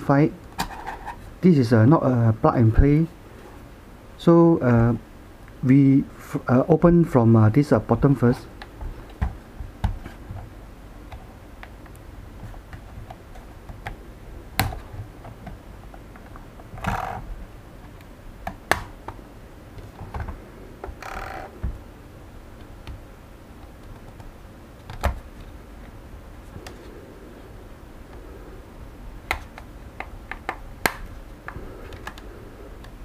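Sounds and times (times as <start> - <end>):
plastic case clicks and snaps: 29.3 - 31.1.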